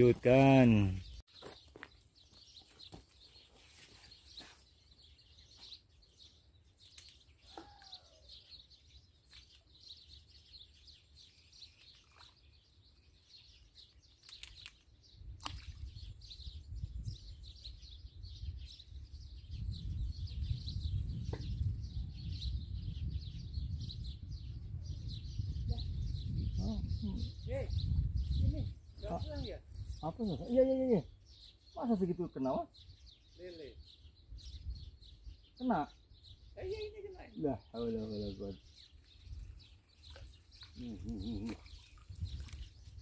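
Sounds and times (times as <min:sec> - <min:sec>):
birds chirping: 0:00.0 - 0:43.0.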